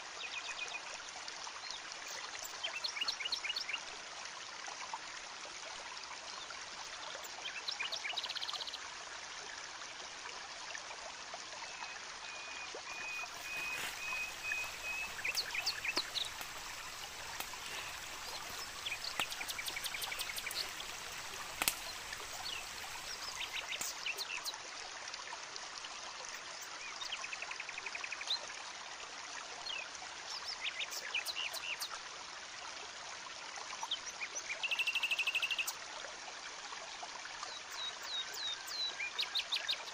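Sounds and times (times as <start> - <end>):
running water: 0.0 - 39.9
high chirping trills: 13.0 - 24.0
campfire crackling: 13.2 - 24.0.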